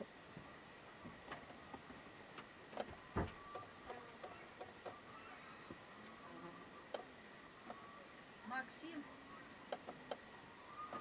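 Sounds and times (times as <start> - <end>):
faint clicks: 6.9 - 7.8, 9.7 - 10.2.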